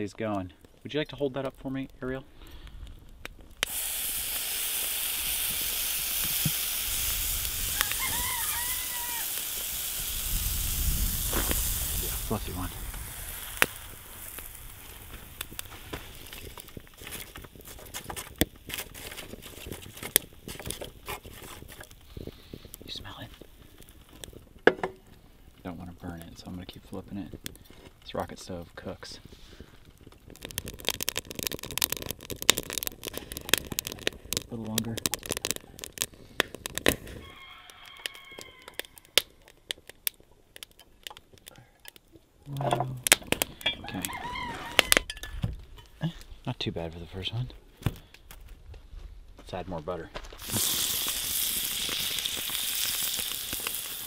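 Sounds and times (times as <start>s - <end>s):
wood fire crackling and popping: 0.0s - 54.0s.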